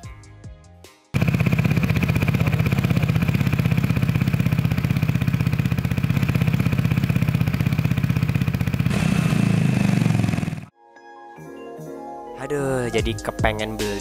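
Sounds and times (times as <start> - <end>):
scooter engine idling: 1.2 - 10.7.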